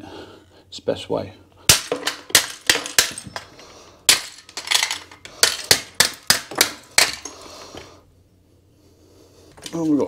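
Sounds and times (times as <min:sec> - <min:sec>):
hammer cracking plastic box: 0:01.7 - 0:03.4, 0:04.1 - 0:07.3.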